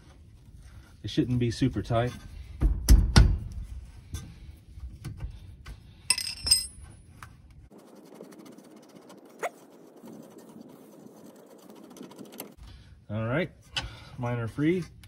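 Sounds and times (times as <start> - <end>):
short ringing metal clink: 6.1 - 6.8
wrench clicking and scraping metal: 6.1 - 6.9.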